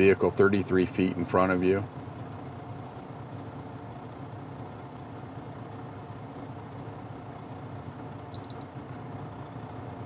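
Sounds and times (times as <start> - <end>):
diesel engine idling: 0.0 - 10.0
short high beeps: 8.3 - 8.7.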